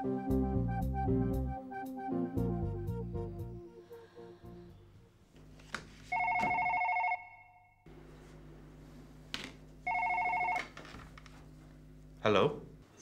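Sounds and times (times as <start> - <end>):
desk telephone ringing: 6.1 - 7.8, 9.8 - 10.9.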